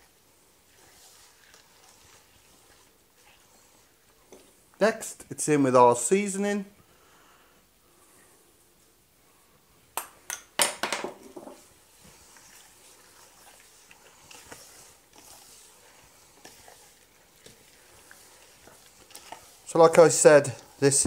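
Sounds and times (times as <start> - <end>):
hand squelching wet mixture: 0.0 - 5.8, 11.6 - 21.0.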